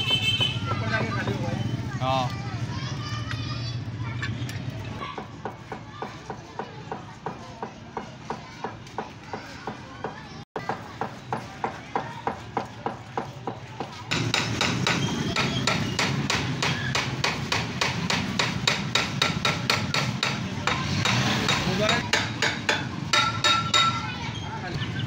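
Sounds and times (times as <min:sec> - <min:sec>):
hammer tapping on metal pipe: 0:18.1 - 0:24.0.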